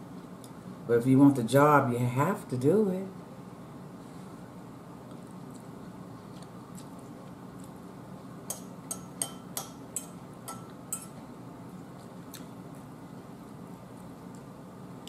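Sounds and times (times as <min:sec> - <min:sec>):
low room hum: 0:00.0 - 0:15.0
metal fork clinking on bowl: 0:08.5 - 0:11.2.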